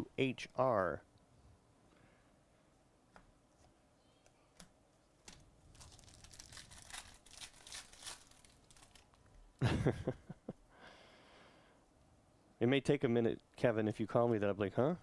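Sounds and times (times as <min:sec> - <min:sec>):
plastic wrapper tearing and crinkling: 0:05.7 - 0:09.3.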